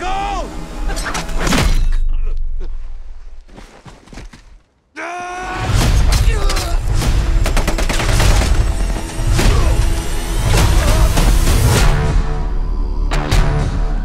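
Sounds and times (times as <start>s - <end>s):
man yelling: 0.0s - 0.6s, 4.9s - 6.8s
dramatic music: 0.0s - 2.6s, 5.4s - 14.0s.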